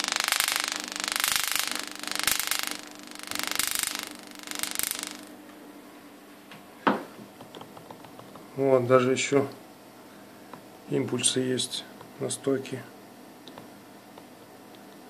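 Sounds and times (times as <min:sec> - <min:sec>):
tesla coil discharge buzzing: 0:00.0 - 0:05.4.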